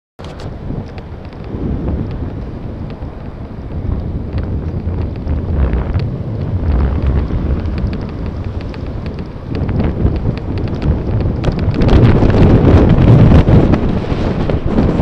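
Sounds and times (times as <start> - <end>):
wind rushing over microphone: 0.2 - 15.0
faint clicks: 2.8 - 12.2.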